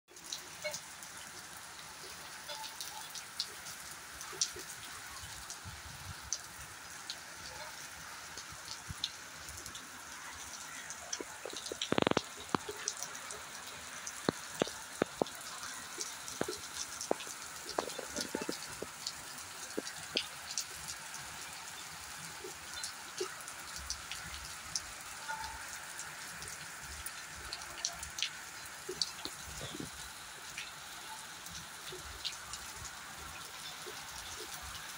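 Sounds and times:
heavy rain hissing: 1.3 - 34.9
close rain drop taps: 10.8 - 20.3.

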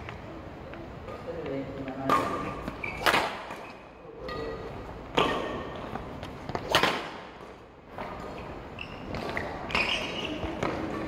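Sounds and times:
rackets hitting shuttlecock: 1.8 - 8.2, 9.0 - 11.0.

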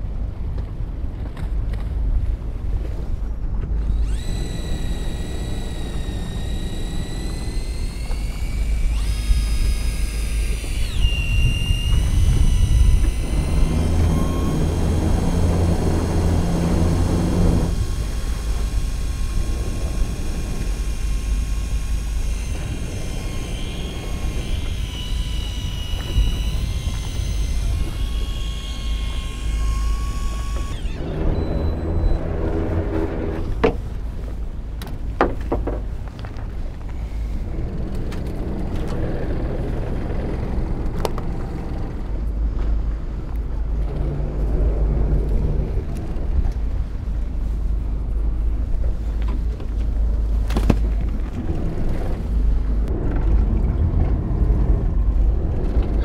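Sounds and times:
boat engine rumble: 0.0 - 56.0
sea: 0.0 - 56.0
electric fishing reel motor whining: 3.9 - 33.6.

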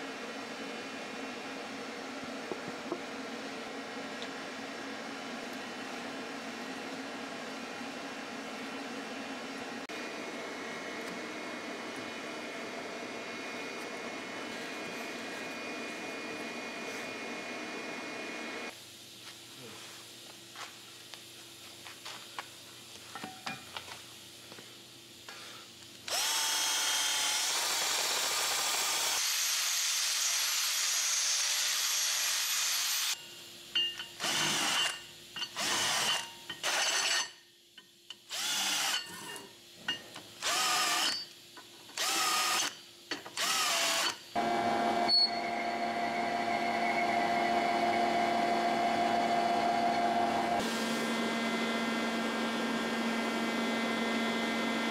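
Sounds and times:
angle grinder grinding steel: 33.9 - 37.4, 38.4 - 39.5
lathe running: 43.4 - 54.9.

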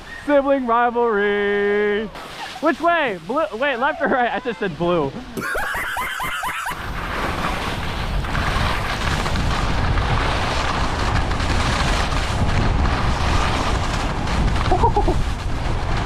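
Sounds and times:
wind buffeting microphone: 3.4 - 16.0.

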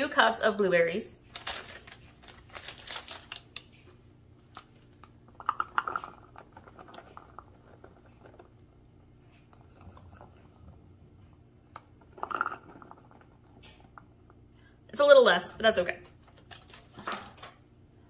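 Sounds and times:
plastic container rustling: 1.3 - 3.8.

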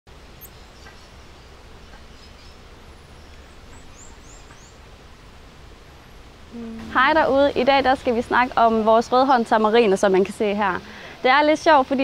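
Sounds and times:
background hiss: 0.1 - 12.0
low hum: 0.2 - 9.0.

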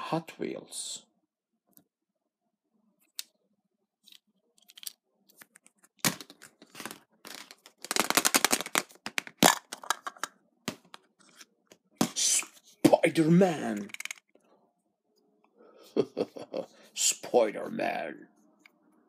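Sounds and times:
plastic toy egg clicks and knocks: 6.1 - 10.9, 13.8 - 14.3.

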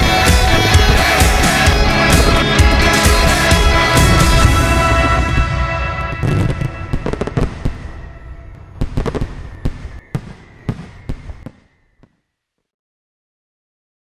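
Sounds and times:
background music: 0.0 - 9.5
fireworks bangs and crackles: 0.0 - 12.2.

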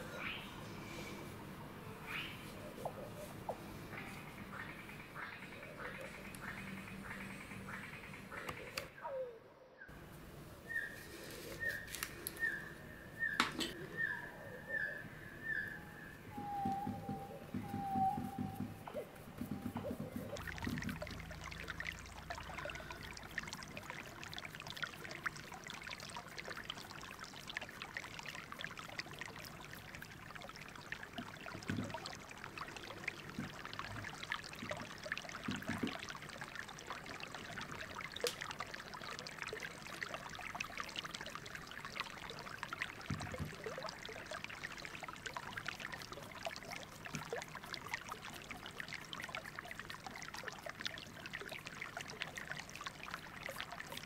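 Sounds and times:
paintbrush scrubbing and dabbing: 17.5 - 26.1.

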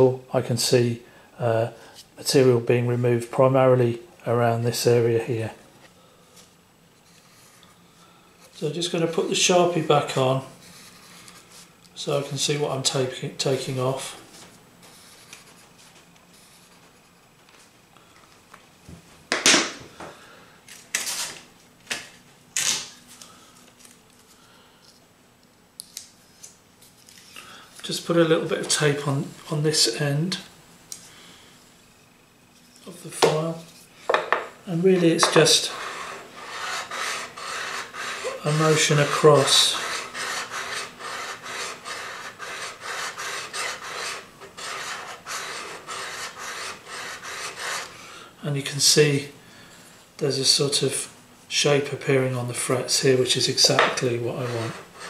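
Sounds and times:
hand tools on workbench: 32.6 - 48.0, 52.9 - 55.0
file rasping on metal frets: 35.2 - 47.9, 54.4 - 55.0.

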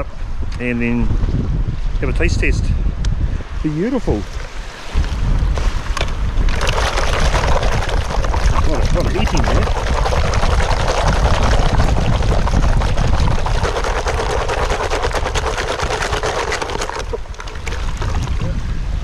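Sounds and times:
wind rumbling on microphone: 0.0 - 19.0
water sloshing: 4.3 - 18.5.

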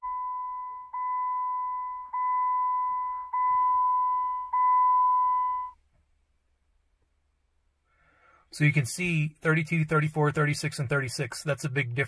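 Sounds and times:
high warning chime beeps: 0.0 - 5.8.

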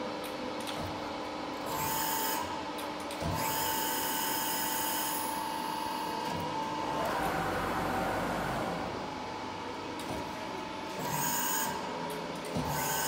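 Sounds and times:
high whine of machine drives: 1.3 - 13.0
machine hum: 5.6 - 11.9.

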